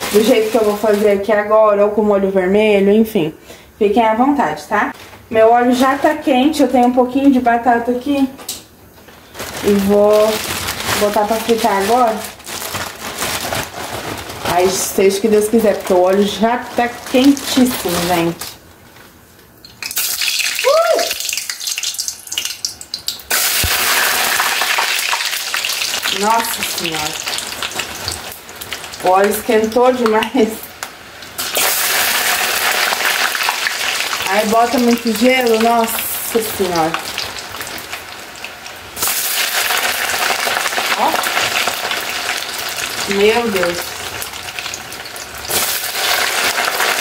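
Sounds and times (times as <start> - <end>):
oil sizzling hard: 19.7 - 47.0.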